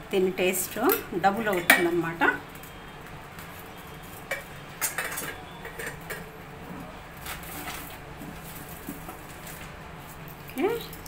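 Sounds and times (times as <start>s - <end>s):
kitchen utensils clinking: 0.6s - 2.4s, 4.2s - 8.0s.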